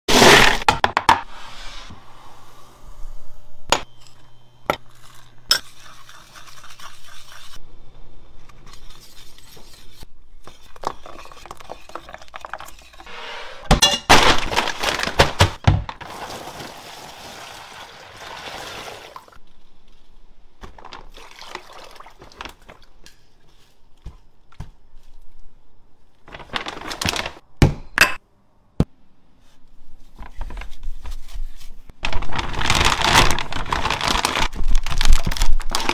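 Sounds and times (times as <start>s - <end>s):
plastic bag rustling: 14.1s - 23.0s, 26.2s - 27.4s, 30.8s - 35.9s
water pouring into plastic container: 16.0s - 19.4s, 21.1s - 22.8s.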